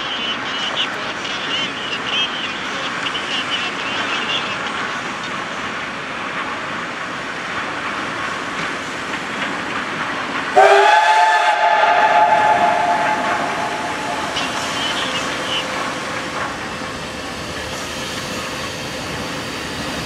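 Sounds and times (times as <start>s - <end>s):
steam locomotive running: 0.0s - 20.0s
steam whistle chord: 10.6s - 14.7s.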